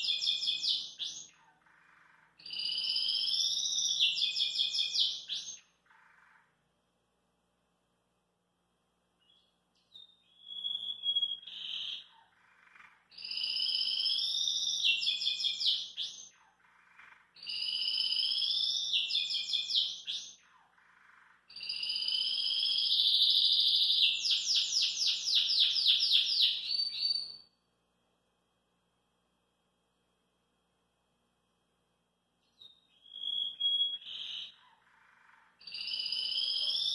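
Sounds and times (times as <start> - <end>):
canary singing: 0.0 - 6.5, 9.2 - 27.5, 32.4 - 36.9.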